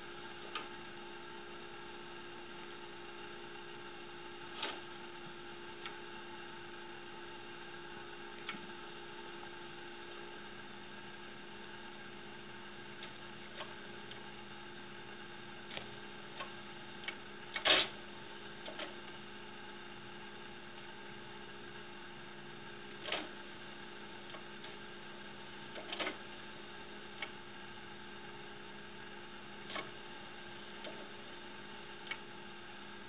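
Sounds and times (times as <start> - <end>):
electrical hum: 0.0 - 33.0.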